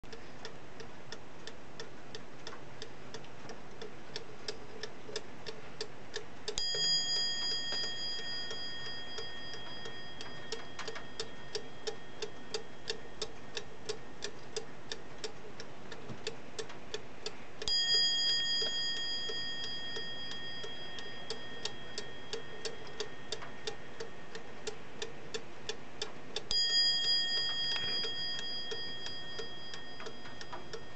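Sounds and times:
clock ticking: 0.1 - 30.9
clock bell ringing: 6.6 - 14.2, 17.7 - 24.9, 26.5 - 30.9.

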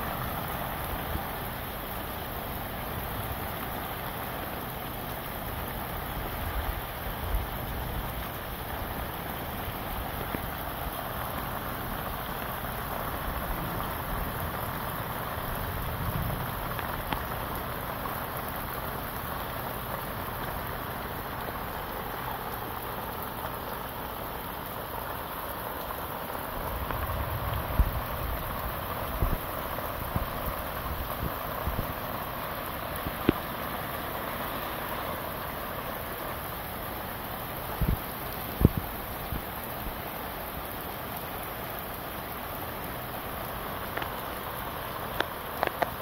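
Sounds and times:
heavy rain: 0.0 - 46.0
wind rumbling on microphone: 26.5 - 32.2, 37.7 - 40.0.

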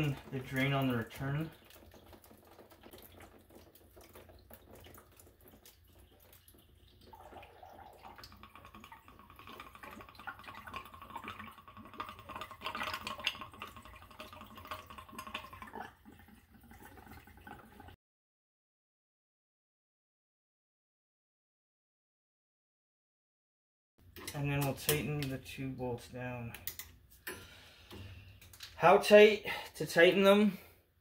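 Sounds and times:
water dripping and trickling: 0.0 - 18.0.

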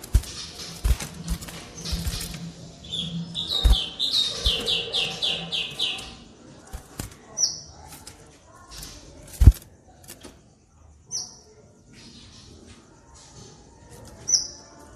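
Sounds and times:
bird whistling song: 2.8 - 6.1.

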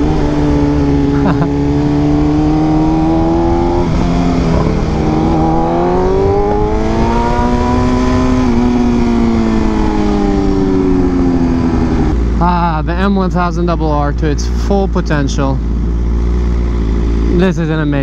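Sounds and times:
motorcycle engine revving: 0.0 - 18.0
wind rush on microphone: 3.0 - 12.2.

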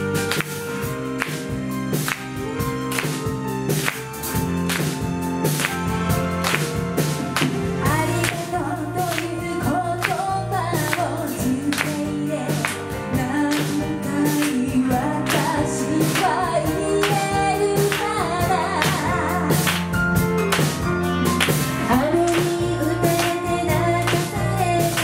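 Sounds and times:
drum kit beat: 0.0 - 25.0
women singing: 7.8 - 19.6, 21.9 - 25.0.

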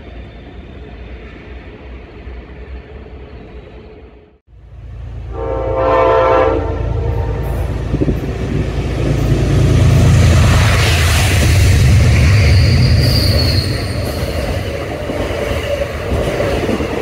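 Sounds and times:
train rumbling past: 0.0 - 17.0
locomotive horn blast: 5.2 - 8.0.

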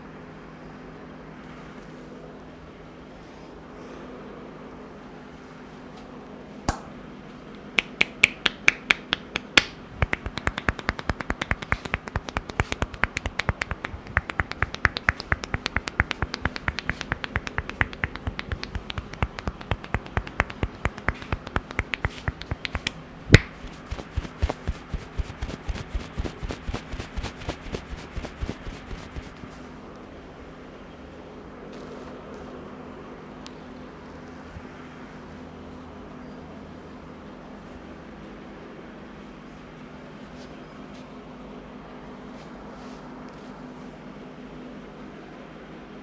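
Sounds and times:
hair snapping between fingers: 6.7 - 6.9, 7.5 - 29.4.

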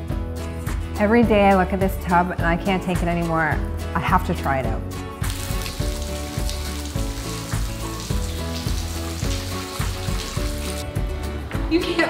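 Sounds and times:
background music with beat: 0.0 - 1.0
water running into bathtub: 5.2 - 10.8.

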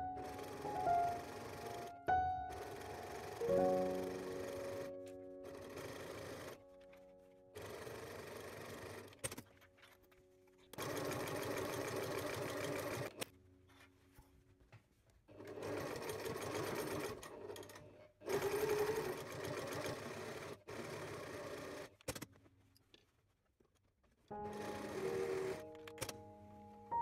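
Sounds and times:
sewing machine stitching: 2.5 - 6.6, 7.6 - 9.5, 10.7 - 13.2, 15.3 - 22.3, 24.4 - 26.1.

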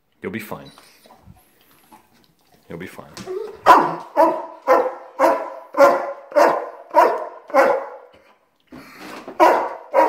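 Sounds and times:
dog barking: 3.6 - 8.1, 9.4 - 10.0.

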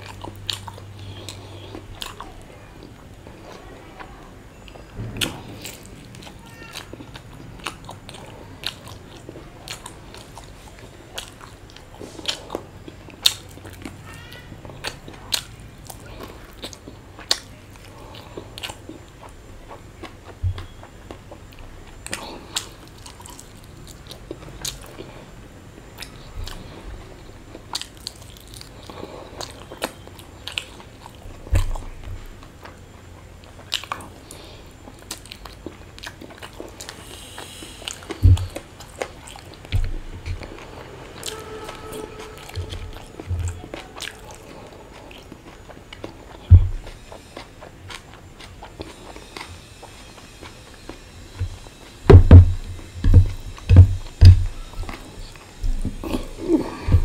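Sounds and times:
person chewing food: 0.0 - 57.0
dull low thumps: 38.2 - 38.6, 46.5 - 46.9, 51.4 - 57.0.

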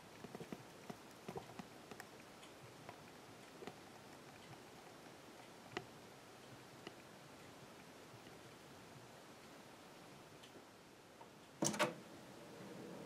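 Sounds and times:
small irregular clicks: 0.0 - 9.6.

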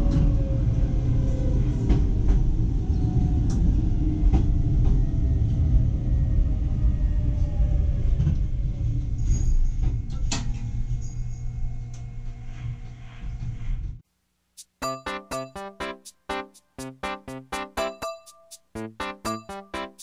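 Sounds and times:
electric train rumble: 0.0 - 14.0.

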